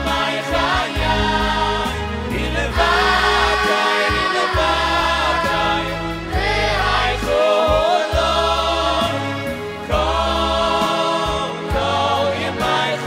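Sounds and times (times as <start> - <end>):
instruments with bass notes: 0.0 - 3.6
boys' choir singing: 0.0 - 13.0.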